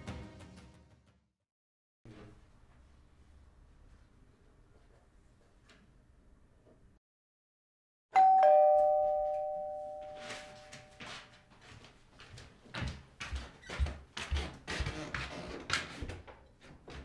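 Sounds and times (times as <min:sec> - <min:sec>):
two-tone doorbell chime: 0:08.2 - 0:11.2
footsteps on wooden floor: 0:10.8 - 0:17.0.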